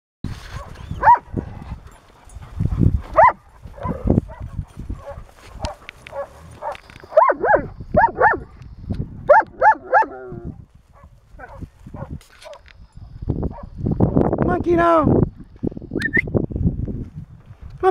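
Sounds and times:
dog barking: 0:00.5 - 0:01.3, 0:03.1 - 0:08.6, 0:09.3 - 0:12.6, 0:13.5 - 0:13.8.

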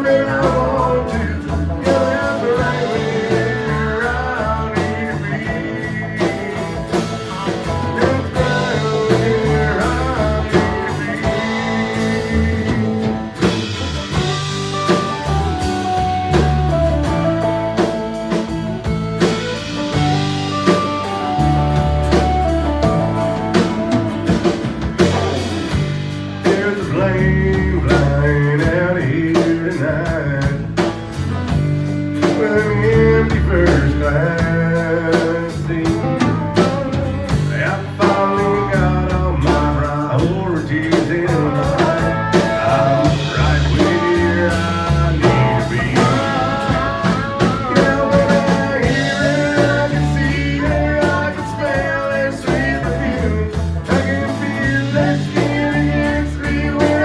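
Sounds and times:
person singing: 0:00.0 - 0:18.6, 0:19.2 - 0:30.9, 0:32.2 - 0:57.0
acoustic and electric guitars: 0:00.0 - 0:57.0
country band playing: 0:00.0 - 0:57.0
drums: 0:00.0 - 0:57.0.

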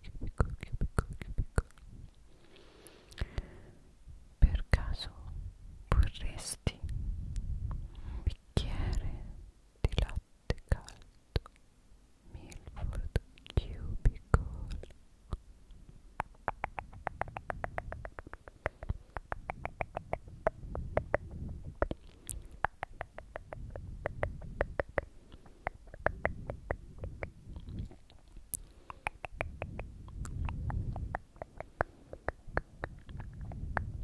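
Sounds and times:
wet mouth clicking and smacking: 0:00.0 - 0:01.9, 0:02.8 - 0:03.5, 0:09.9 - 0:11.6, 0:12.5 - 0:15.4, 0:16.2 - 0:34.0.

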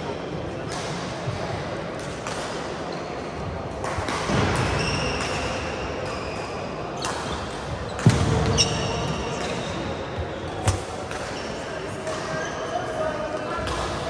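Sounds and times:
indoor hall noise: 0:00.0 - 0:14.0
shoes squeaking on court floor: 0:04.5 - 0:13.6.

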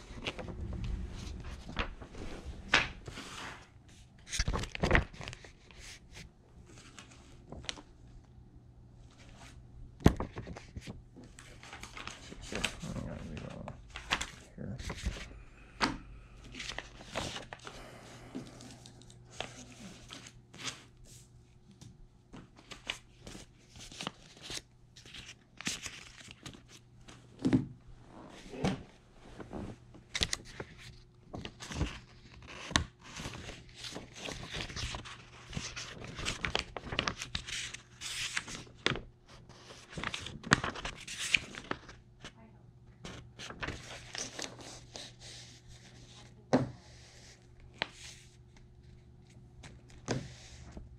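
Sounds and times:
paper rustling: 0:00.0 - 0:08.0, 0:09.1 - 0:15.3, 0:16.4 - 0:17.8, 0:22.4 - 0:27.2, 0:29.3 - 0:42.3, 0:43.0 - 0:46.3
faint steady hum: 0:00.0 - 0:50.9.

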